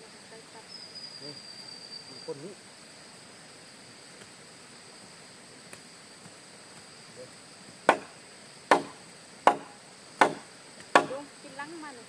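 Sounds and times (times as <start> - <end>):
high insect drone: 0.0 - 12.0
blade chopping wood: 7.9 - 11.2.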